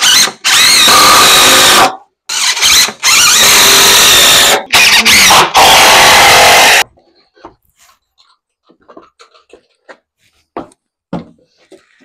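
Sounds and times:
cordless drill driving screws: 0:00.0 - 0:06.8.

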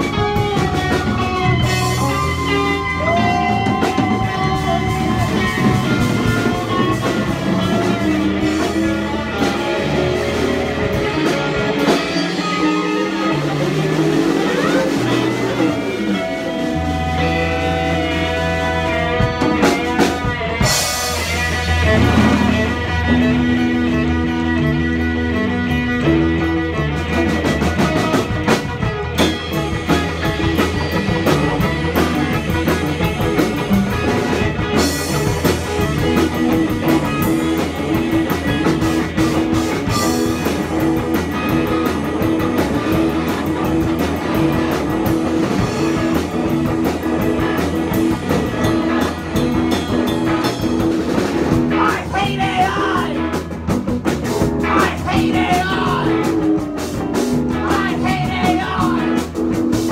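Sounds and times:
punk rock band playing: 0:00.0 - 0:59.9
person singing: 0:02.0 - 0:09.6, 0:51.6 - 0:53.4, 0:54.6 - 0:56.4, 0:57.4 - 0:59.3.

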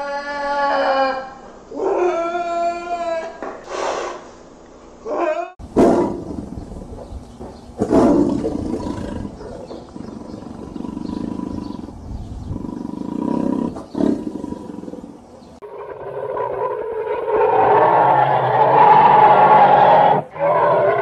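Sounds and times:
tiger roaring: 0:05.1 - 0:06.7, 0:07.8 - 0:21.0.

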